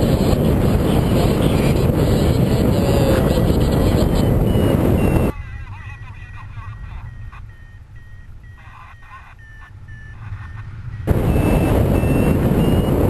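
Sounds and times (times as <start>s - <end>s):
loud wind noise: 0.0s - 5.4s, 10.2s - 13.0s
low wind rumble: 0.0s - 13.0s
variometer beeping: 0.0s - 13.0s.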